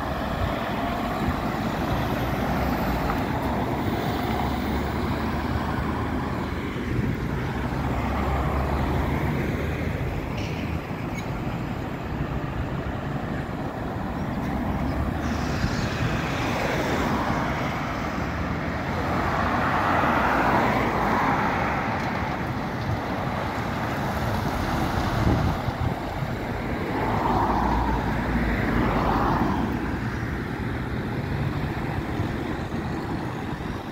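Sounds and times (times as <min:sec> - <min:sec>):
heavy truck engine: 0:00.0 - 0:33.9
road traffic passing: 0:00.0 - 0:33.9.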